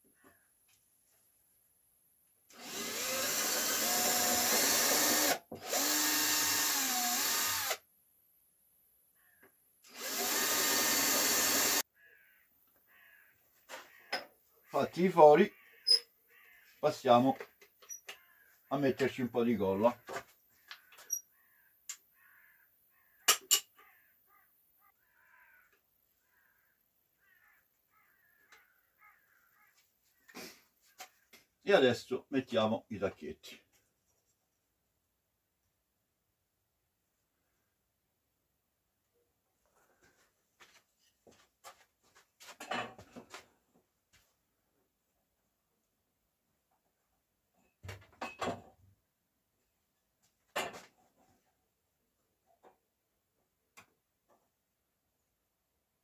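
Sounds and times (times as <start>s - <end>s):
crows cawing: 0.1s - 0.5s, 9.2s - 9.5s, 11.9s - 14.6s, 15.4s - 16.8s, 18.0s - 18.7s, 20.5s - 30.4s
cordless drill boring into wood: 2.5s - 7.8s, 9.8s - 11.8s.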